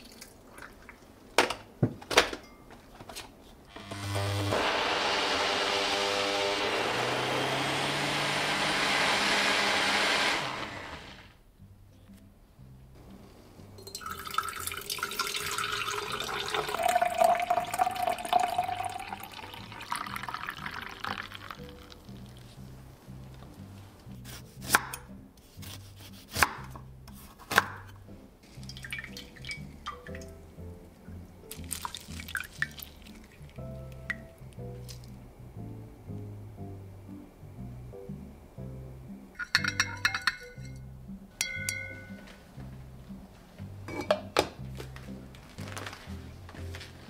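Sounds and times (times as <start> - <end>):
blender motor running: 3.7 - 11.4
knife cutting on wooden board: 24.2 - 27.7.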